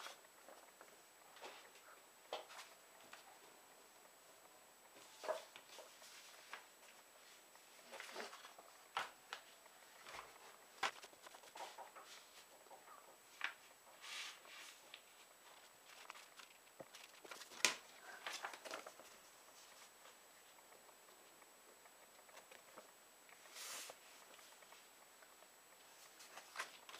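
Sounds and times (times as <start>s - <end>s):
paper rustling and crackling: 7.8s - 12.5s, 13.3s - 20.0s, 26.0s - 26.9s.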